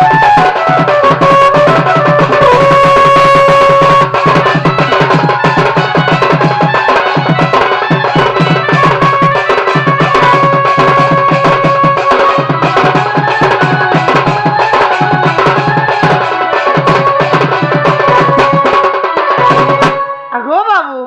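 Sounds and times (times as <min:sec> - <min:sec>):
organ melody: 0:00.0 - 0:09.4
fast drum beats: 0:00.0 - 0:21.0.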